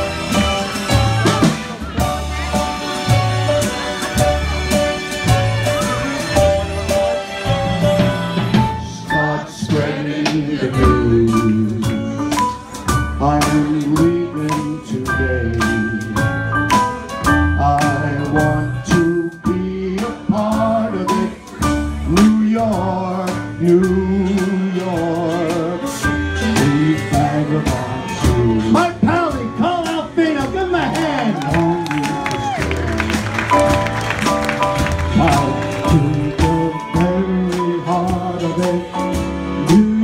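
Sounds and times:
drums beating: 0:00.0 - 0:25.7, 0:26.4 - 0:40.0
live band playing: 0:00.0 - 0:40.0
man singing with vibrato: 0:07.5 - 0:12.4, 0:13.1 - 0:16.5, 0:17.4 - 0:21.5, 0:22.1 - 0:29.6, 0:35.1 - 0:40.0.

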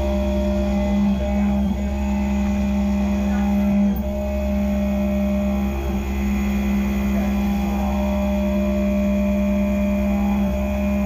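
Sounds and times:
milling machine cutting tone: 0:00.0 - 0:11.0.

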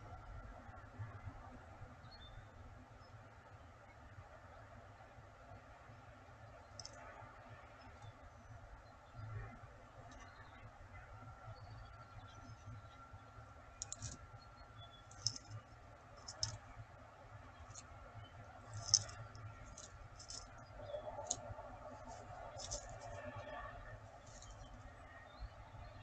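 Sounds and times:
gravel clicks and ticks: 0:06.6 - 0:07.2, 0:13.6 - 0:26.0.

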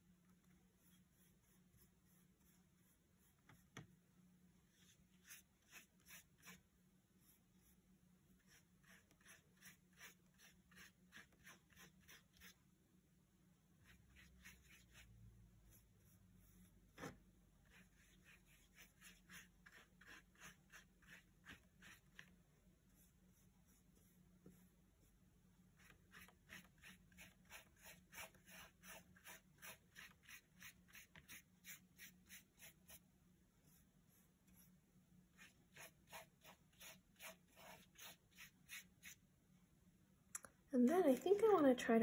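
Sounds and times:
paintbrush swishing on paper: 0:00.6 - 0:03.8, 0:04.6 - 0:12.6, 0:13.8 - 0:39.2.

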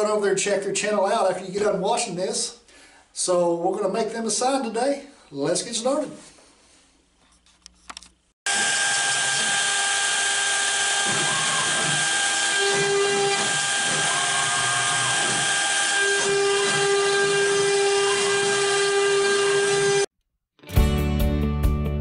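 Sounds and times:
router spindle whining: 0:08.5 - 0:20.1.

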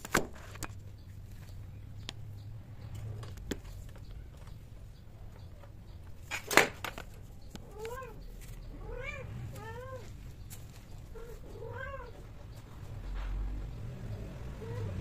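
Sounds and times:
cat meows: 0:07.6 - 0:10.2, 0:11.1 - 0:12.3.

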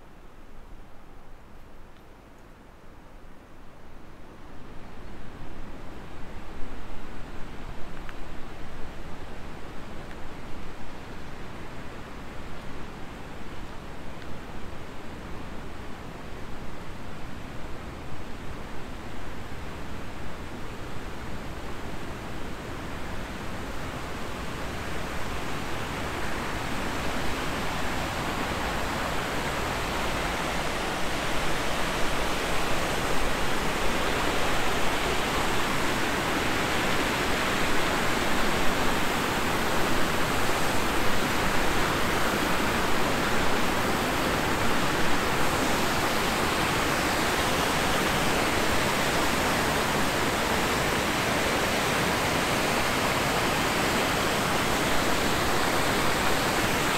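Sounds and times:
water rushing over rocks: 0:25.0 - 0:56.9.

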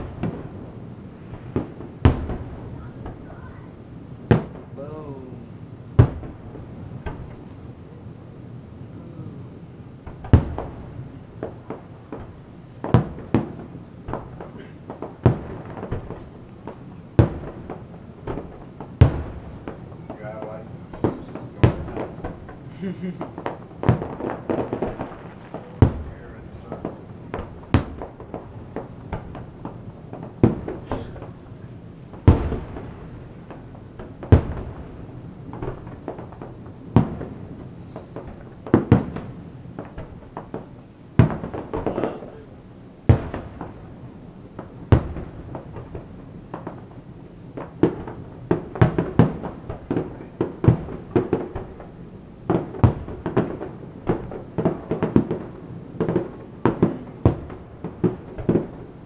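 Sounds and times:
firework shells booming: 0:00.0 - 0:08.1, 0:08.9 - 0:59.0
small firework pops: 0:06.0 - 0:06.4, 0:10.0 - 0:10.8, 0:11.4 - 0:31.4, 0:32.1 - 0:34.9, 0:35.5 - 0:42.4, 0:43.1 - 0:43.8, 0:44.6 - 0:46.9, 0:47.6 - 0:58.9.

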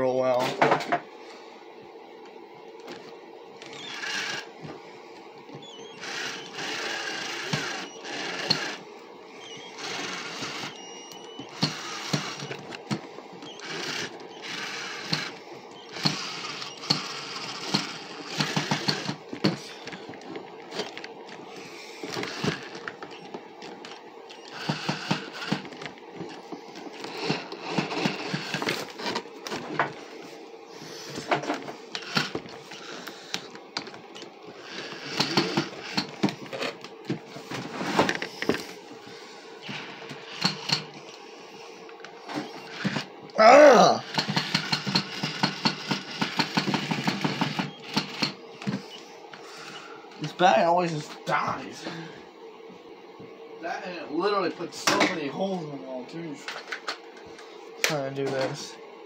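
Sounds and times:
cordless drill bursts: 0:03.6 - 0:04.6, 0:05.6 - 0:20.0, 0:21.6 - 0:23.3, 0:24.3 - 0:25.8, 0:27.0 - 0:29.0, 0:31.9 - 0:33.2, 0:34.6 - 0:36.3, 0:40.3 - 0:41.0, 0:42.4 - 0:43.1, 0:44.0 - 0:49.0.

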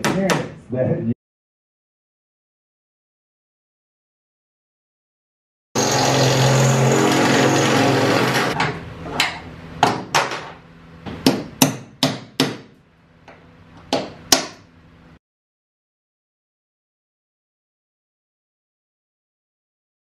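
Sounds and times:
power tool running: 0:05.8 - 0:08.6.

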